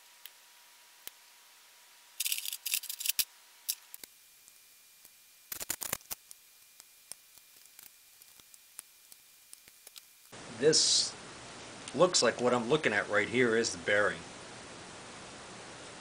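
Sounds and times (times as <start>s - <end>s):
pliers clicking and rattling: 2.2s - 3.8s.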